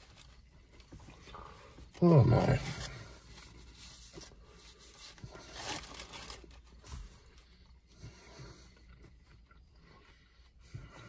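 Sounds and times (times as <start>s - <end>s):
paper crinkling and rustling: 2.4s - 7.6s.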